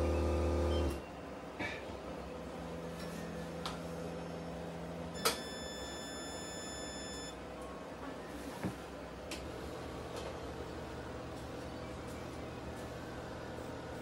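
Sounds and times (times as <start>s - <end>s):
high electronic beep: 5.2s - 7.4s.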